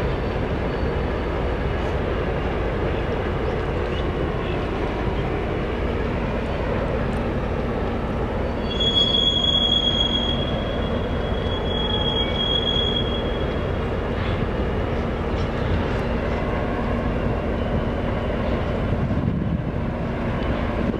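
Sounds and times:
railcar dumper low rumble: 0.0 - 20.9
high steady squeal: 8.4 - 13.8.

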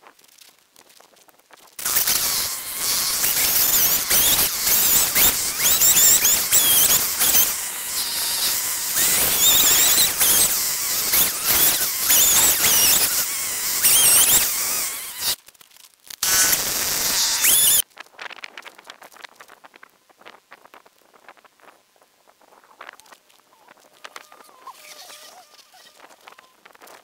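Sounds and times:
chainsaw cutting log: 1.8 - 15.4, 16.2 - 17.8.

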